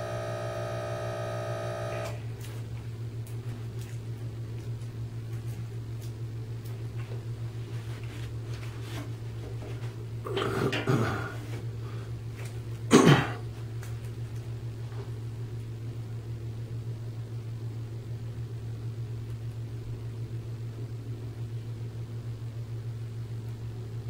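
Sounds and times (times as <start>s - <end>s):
low electrical hum: 0.0s - 24.0s
person clearing throat: 10.3s - 11.4s, 12.9s - 13.5s
person coughing: 10.3s - 11.4s, 12.9s - 13.5s.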